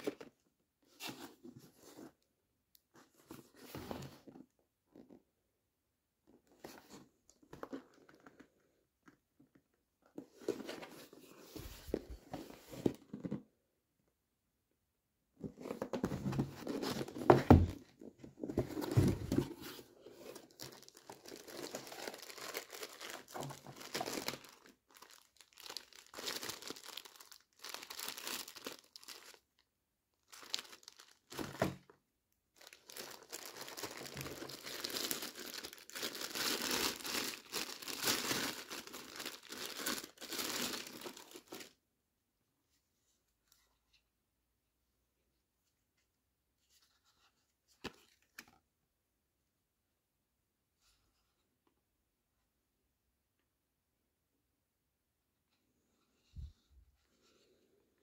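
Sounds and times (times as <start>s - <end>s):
cardboard box being opened: 15.5s - 22.2s
plastic wrapping crinkling: 20.3s - 29.4s, 30.3s - 31.6s, 32.6s - 41.7s.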